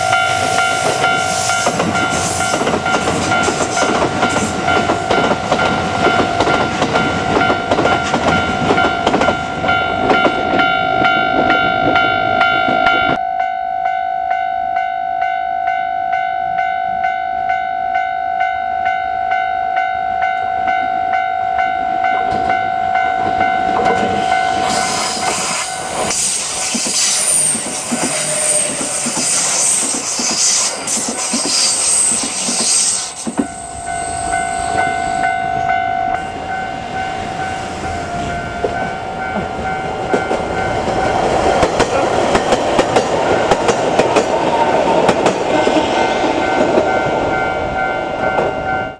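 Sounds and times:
level-crossing bell ringing: 0.0s - 24.8s, 33.4s - 41.9s
train wheels clattering over rails: 0.4s - 12.0s, 23.3s - 33.6s, 38.6s - 47.4s
train wheels squealing: 24.2s - 35.3s.

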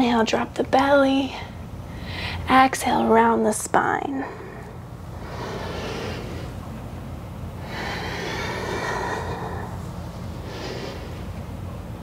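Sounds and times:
woman breathing slowly: 1.4s - 2.5s, 4.2s - 11.7s.

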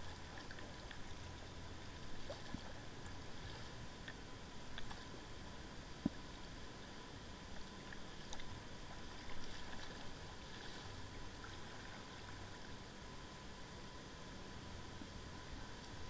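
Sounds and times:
hiss of moving water: 0.0s - 16.0s
paddle splashing: 8.3s - 12.4s.

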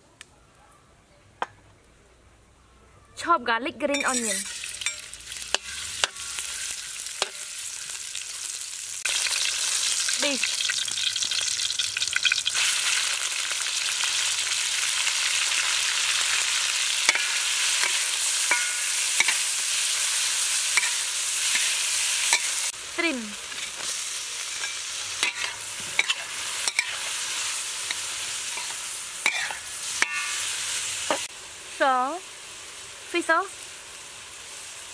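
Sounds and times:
food sizzling in hot oil: 3.8s - 34.9s
metal ladle scraping wok: 3.9s - 7.8s, 16.2s - 22.7s, 23.4s - 31.3s.

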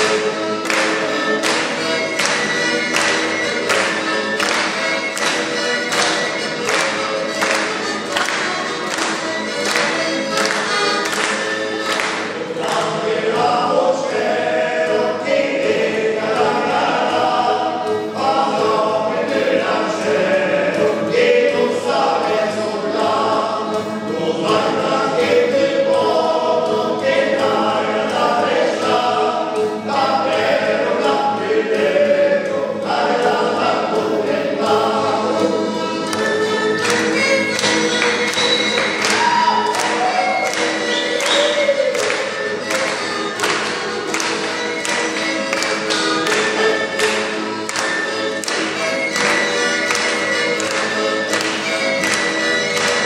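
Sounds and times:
men singing in harmony: 12.1s - 53.0s.

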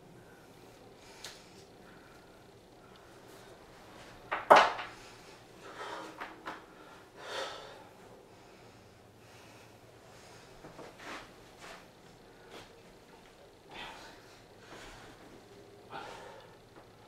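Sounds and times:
man breathing hard: 0.1s - 3.6s, 4.9s - 10.8s, 13.6s - 17.0s.

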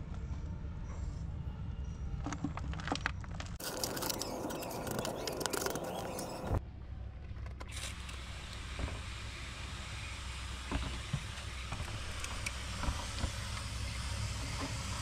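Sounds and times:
soil scraping and pattering: 2.3s - 6.6s.

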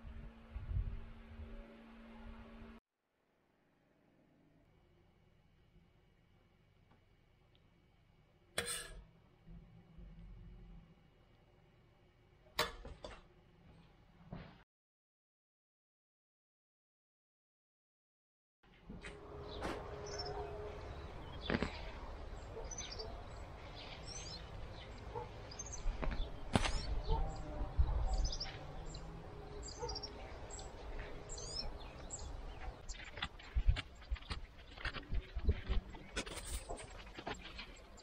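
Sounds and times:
birds chirping: 19.1s - 38.0s.

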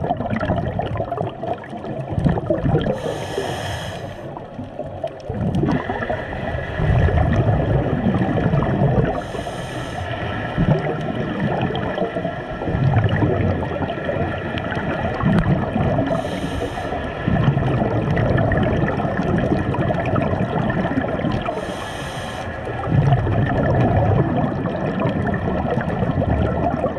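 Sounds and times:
exhaled bubbles rumbling: 0.0s - 26.9s
regulator inhale hiss: 2.9s - 4.4s, 9.2s - 10.4s, 16.1s - 17.2s, 21.5s - 22.7s.

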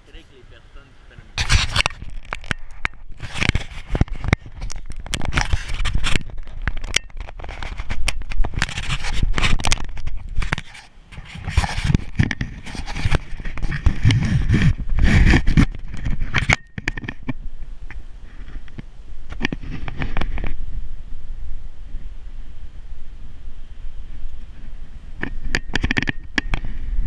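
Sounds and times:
camera handling noise: 1.4s - 18.0s.

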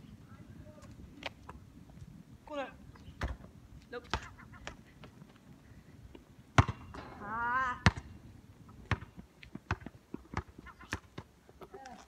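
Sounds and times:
basketball bouncing: 6.6s - 8.2s, 8.8s - 11.3s.

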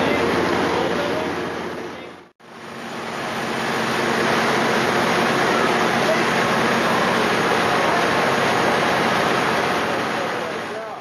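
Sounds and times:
rushing water: 2.8s - 11.0s.

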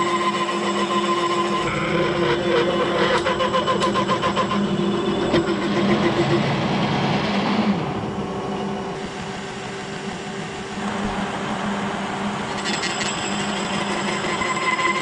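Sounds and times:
milling machine cutting: 10.7s - 15.0s.

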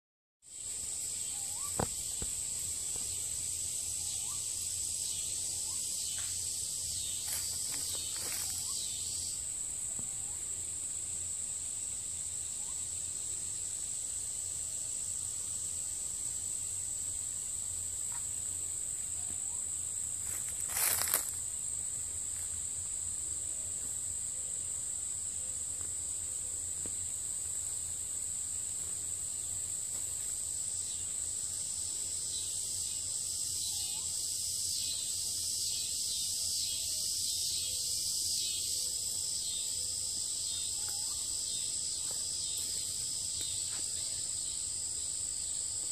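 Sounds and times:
insects droning: 0.4s - 45.9s.

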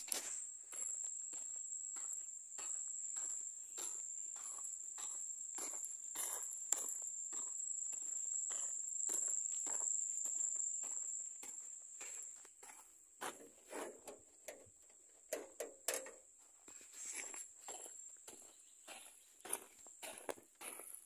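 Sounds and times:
footsteps crunching on gravel: 0.0s - 14.0s, 16.4s - 21.0s
high-pitched insect drone: 0.1s - 12.4s.

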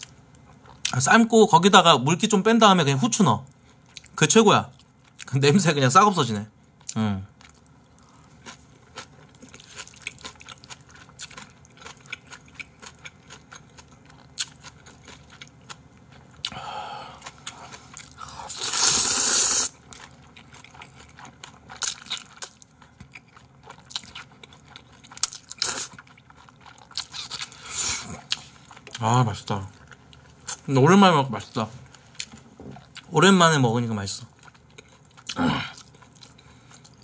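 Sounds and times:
chewing with wet clicks: 3.8s - 5.3s, 6.8s - 16.6s, 19.9s - 27.6s, 34.3s - 37.0s
slurping noodles: 18.3s - 19.7s.

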